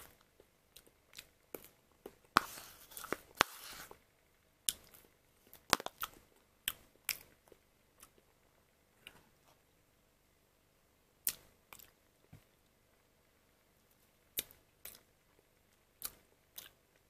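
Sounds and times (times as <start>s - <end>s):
spoon scraping plastic cup: 2.4s - 4.0s.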